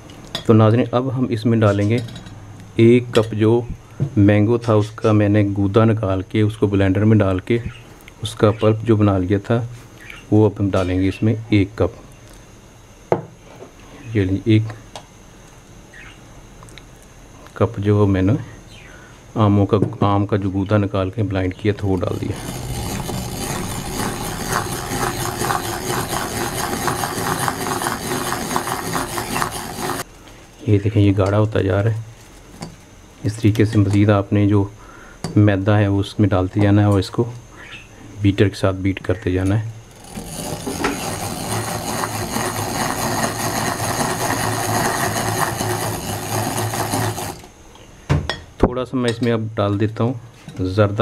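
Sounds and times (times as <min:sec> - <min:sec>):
egg beater whirring rattle: 0:21.8 - 0:30.1, 0:39.9 - 0:47.6
electric hand mixer whisking batter: 0:21.9 - 0:30.1, 0:39.9 - 0:47.5.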